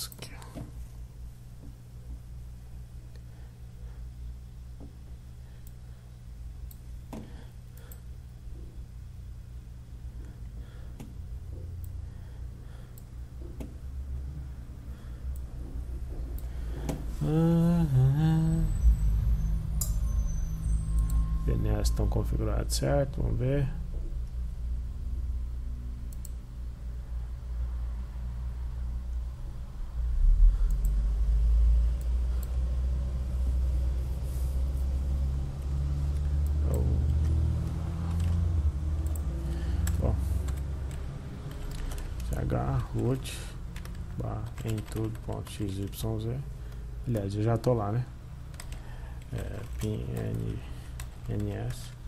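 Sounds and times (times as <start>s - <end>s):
steady low hum: 0.0s - 52.0s
man vocal sound: 17.1s - 18.8s
computer mouse clicks: 26.1s - 26.4s, 39.0s - 42.4s.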